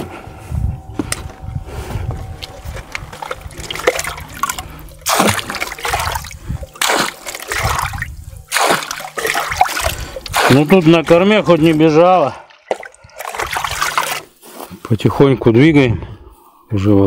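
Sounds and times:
water splashing from bailing: 3.1 - 14.4.

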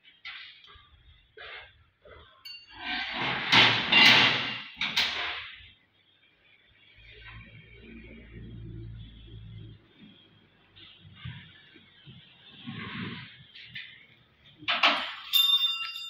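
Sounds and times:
metal tools clattering: 2.4 - 5.2, 14.7 - 16.0.

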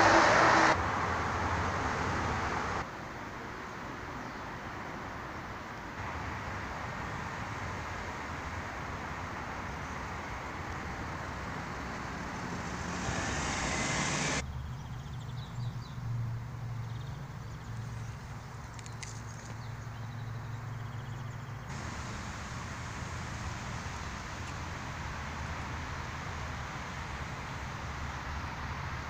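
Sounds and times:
cars passing: 0.0 - 2.9, 6.1 - 14.4, 21.7 - 29.0.

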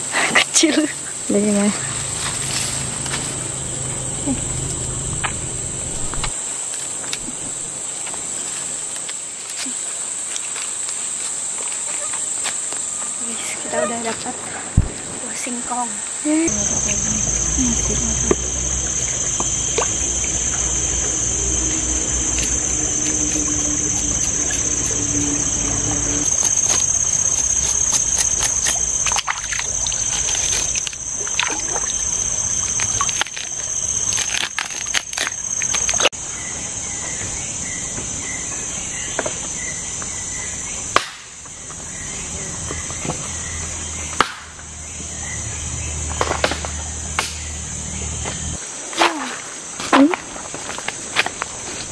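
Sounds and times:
high-pitched insect drone: 0.0 - 51.9.

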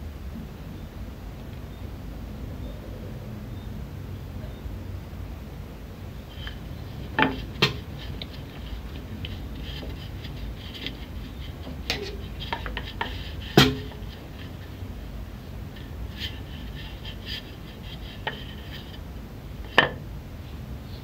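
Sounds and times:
rolling pin rolling dough: 6.3 - 20.0.

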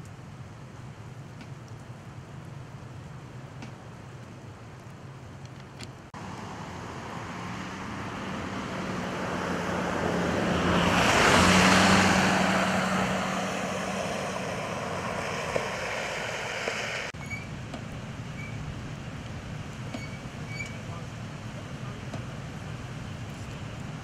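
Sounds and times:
vehicle passing on snowy road: 6.1 - 17.2.

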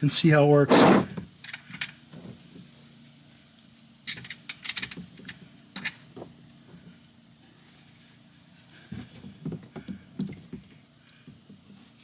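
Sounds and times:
metallic clicks and rattles: 3.5 - 6.1.

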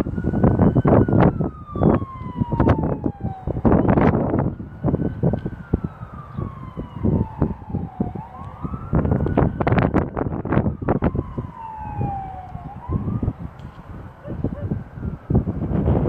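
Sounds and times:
siren wailing: 0.0 - 16.0
rumbling noise on microphone: 6.7 - 16.0.

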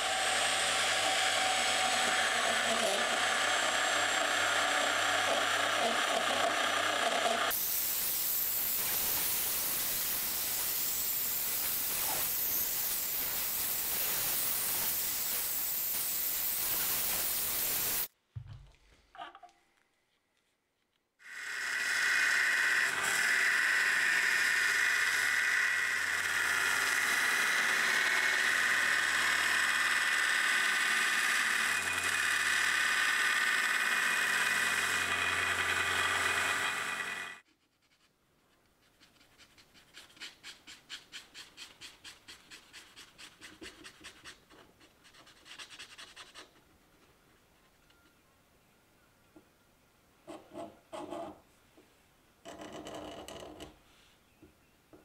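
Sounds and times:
bandsaw cutting steel: 0.0 - 18.1, 21.2 - 37.4
marker rubbing on steel: 37.4 - 46.6.

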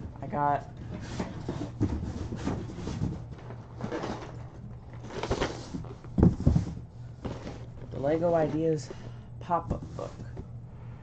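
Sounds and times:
steady low hum: 0.0 - 11.0
cardboard box rustling and knocking: 0.8 - 9.0
box scraping: 0.8 - 10.4.

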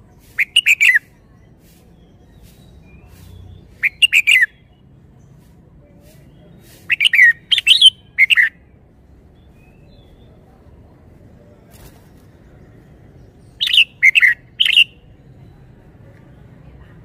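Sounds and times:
bird singing: 2.0 - 4.8, 6.3 - 8.6, 12.6 - 15.6.

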